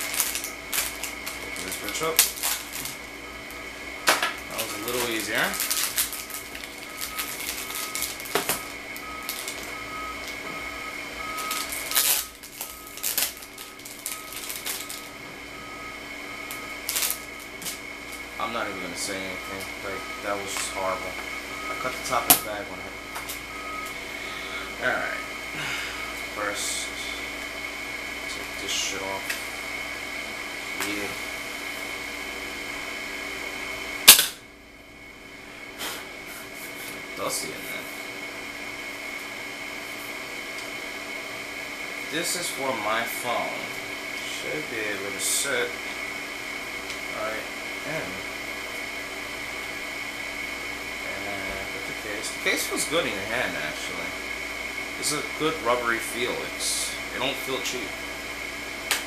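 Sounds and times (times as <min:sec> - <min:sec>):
plastic bag crinkling: 0:00.0 - 0:03.0, 0:04.4 - 0:09.8, 0:11.4 - 0:15.1, 0:16.8 - 0:17.8
faint high whine: 0:00.0 - 0:59.0
faint pulsing tone: 0:06.7 - 0:13.1, 0:13.7 - 0:17.6, 0:18.4 - 0:27.3.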